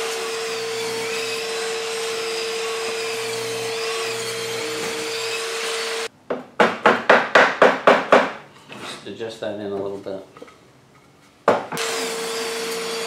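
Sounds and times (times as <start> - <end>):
table saw cutting wood: 0.0 - 6.1, 11.7 - 13.0
sharp knocks: 6.3 - 8.4.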